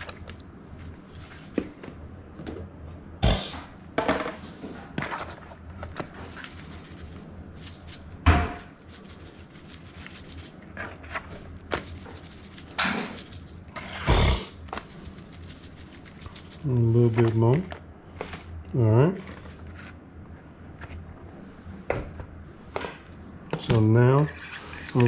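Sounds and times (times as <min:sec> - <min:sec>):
rustles and knocks: 0:05.8 - 0:13.9.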